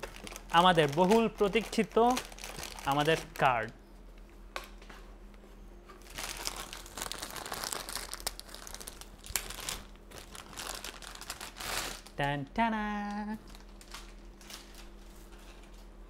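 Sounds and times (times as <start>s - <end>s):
plastic bag crinkling: 0.0s - 3.7s, 6.0s - 12.3s, 13.0s - 15.3s.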